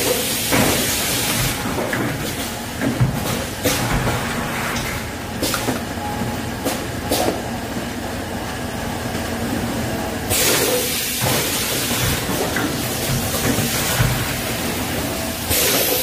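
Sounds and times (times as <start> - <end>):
packaging machine humming: 0.0 - 16.0
machine hiss: 10.3 - 16.0.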